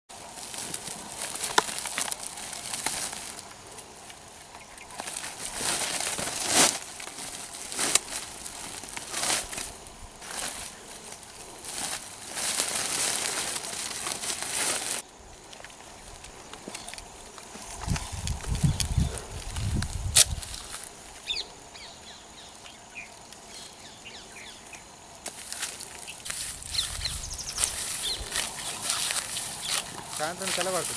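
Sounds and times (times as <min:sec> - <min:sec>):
plastic sack rustling: 0:00.1 - 0:04.2, 0:04.8 - 0:15.0, 0:25.3 - 0:30.9
dry grass and twigs crackling: 0:00.1 - 0:30.9
small birds chirping: 0:17.7 - 0:20.1, 0:25.6 - 0:30.9.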